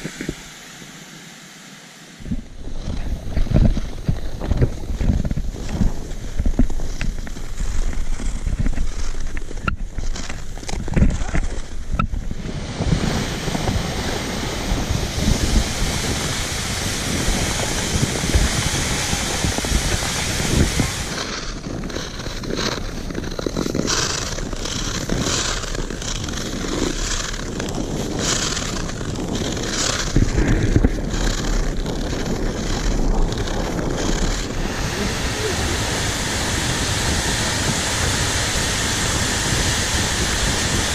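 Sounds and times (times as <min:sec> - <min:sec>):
wind rushing over microphone: 0:02.2 - 0:40.9
ice skate blades scraping: 0:02.7 - 0:40.9.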